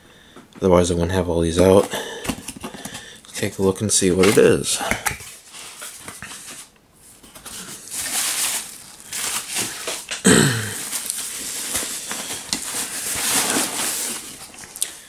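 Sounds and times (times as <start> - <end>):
plastic wrap crinkling: 5.0 - 15.0
cardboard flaps scraping: 11.2 - 14.6.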